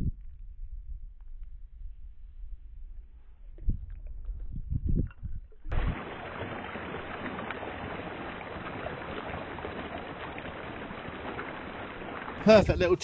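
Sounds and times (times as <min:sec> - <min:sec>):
water rushing over rocks: 0:05.7 - 0:13.0.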